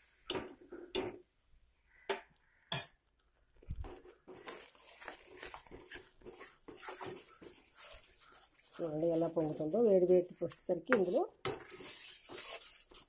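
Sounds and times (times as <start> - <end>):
spatula scraping crackling batter: 3.7 - 13.0.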